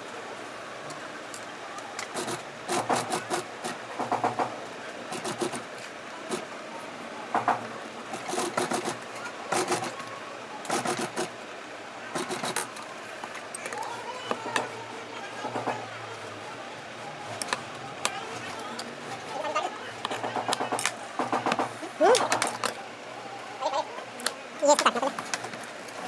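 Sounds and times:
sewing machine stitching: 0:02.1 - 0:04.5, 0:05.1 - 0:05.6, 0:08.1 - 0:10.0, 0:10.7 - 0:11.3, 0:12.2 - 0:12.7.

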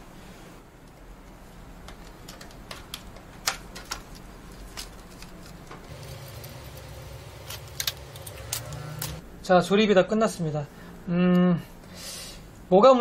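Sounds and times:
low steady hum: 0:00.0 - 0:12.7
plastic connectors clicking: 0:01.8 - 0:05.6.

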